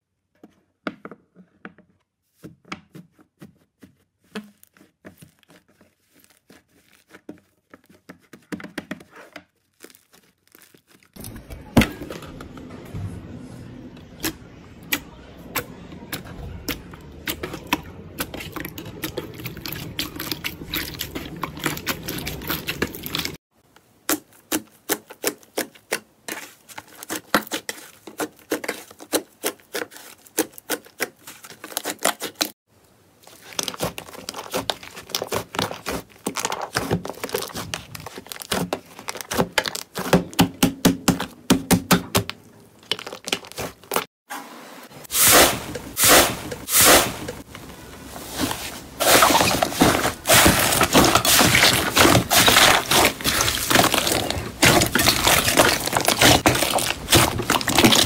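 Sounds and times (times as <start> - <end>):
crunchy slime crackling: 4.3 - 7.6, 9.5 - 11.7, 15.6 - 23.4, 33.2 - 40.4, 42.4 - 44.1, 48.4 - 58.0
slime squishing and popping: 49.0 - 58.0.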